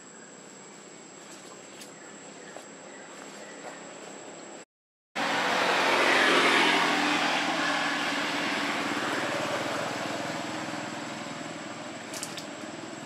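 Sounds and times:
engine passing by: 5.2 - 13.0.

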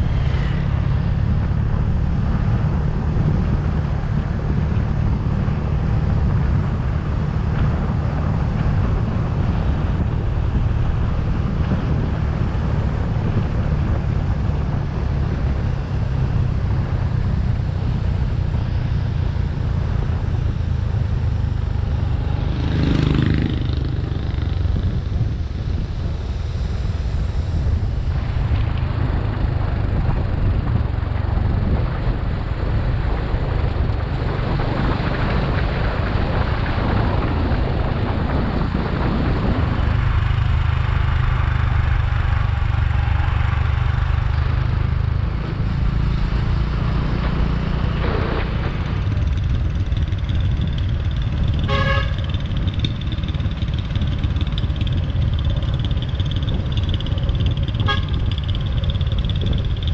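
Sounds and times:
scooter engine hum: 0.0 - 59.9
wind rush on microphone: 0.0 - 59.9
scooter horn beep: 51.6 - 52.3, 57.8 - 58.3.

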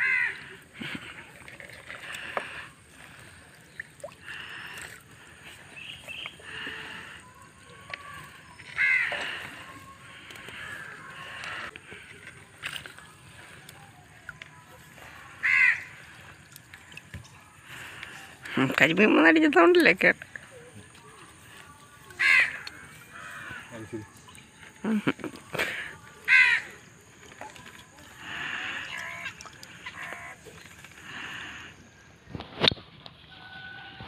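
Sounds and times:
crows cawing: 0.0 - 0.7, 7.9 - 12.1, 15.1 - 16.4, 22.1 - 24.0, 26.3 - 26.8, 28.2 - 31.6
wet net sloshing and dripping: 0.0 - 19.0, 19.8 - 31.6.

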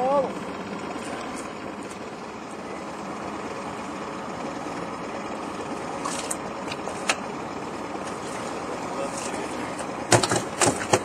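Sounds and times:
outboard motor idling: 0.0 - 11.0
short sharp knocks: 10.1 - 11.0.

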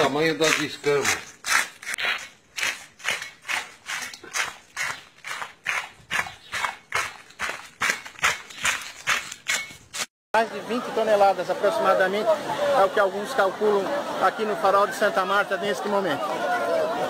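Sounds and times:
blade scraping fish scales: 0.4 - 5.5.

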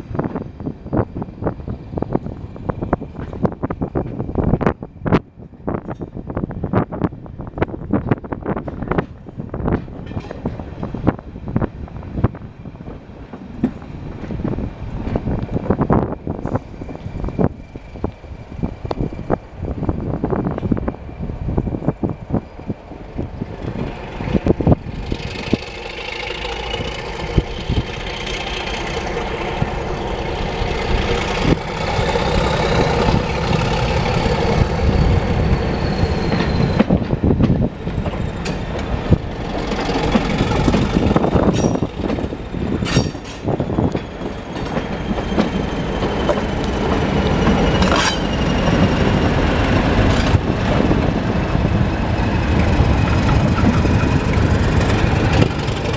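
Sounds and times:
diesel locomotive engine: 0.0 - 55.9
wheels clicking on track: 22.9 - 55.9
high wheel squeal: 23.7 - 37.2, 47.3 - 50.4.

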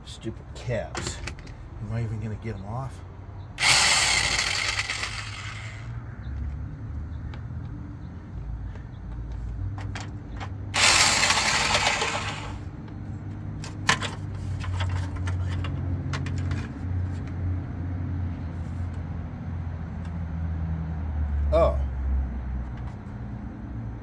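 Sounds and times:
electric impact wrench running: 3.6 - 5.9, 10.8 - 12.7.

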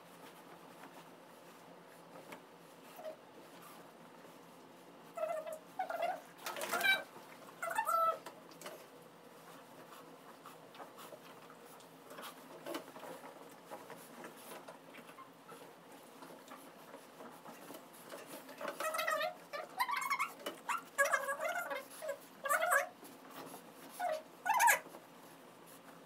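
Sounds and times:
dog whining: 5.1 - 8.2, 18.8 - 23.0, 23.9 - 24.9
towel rubbing a dog: 9.4 - 26.0.

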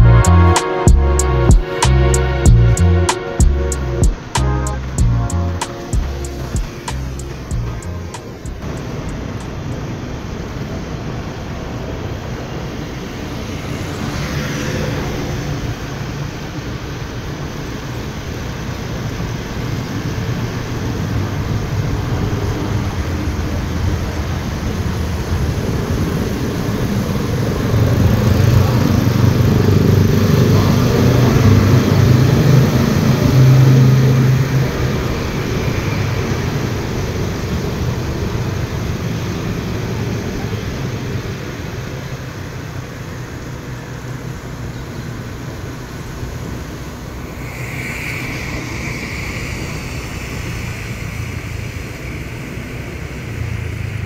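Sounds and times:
surrounding traffic: 0.0 - 54.0
tyres hissing on wet road: 8.2 - 54.0.

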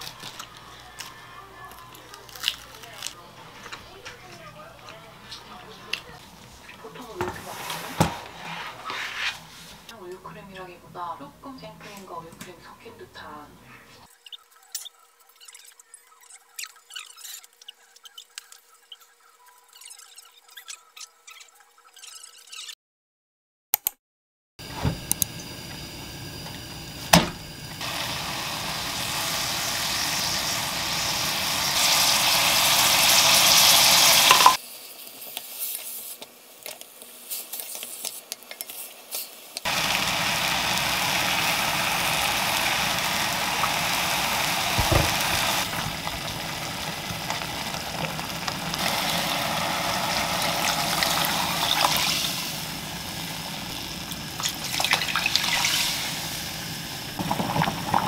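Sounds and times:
seaweed sizzling in oil: 0.0 - 3.2, 25.2 - 58.0
spatula stirring in pot: 33.6 - 39.7.

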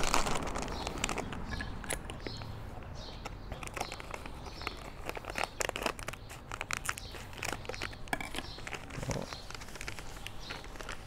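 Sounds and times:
dry ingredients and packaging crinkling: 0.0 - 11.0.

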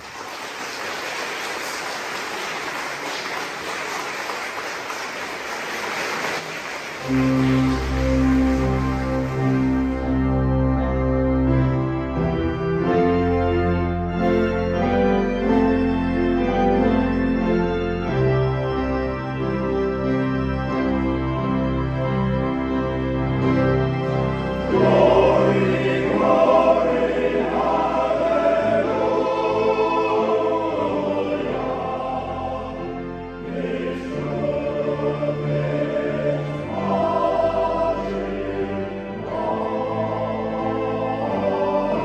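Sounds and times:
male choir singing: 24.5 - 42.0.

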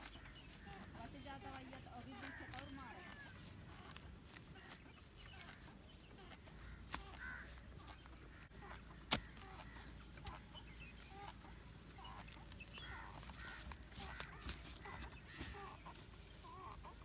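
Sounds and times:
chickens clucking: 0.0 - 17.0
hoe chopping into turf: 8.6 - 10.4.

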